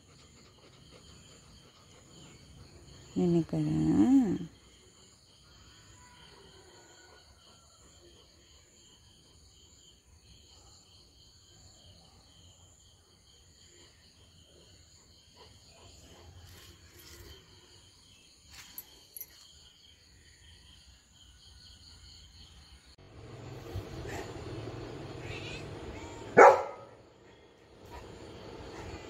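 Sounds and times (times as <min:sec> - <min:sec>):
insects chirring: 0:12.4 - 0:29.0.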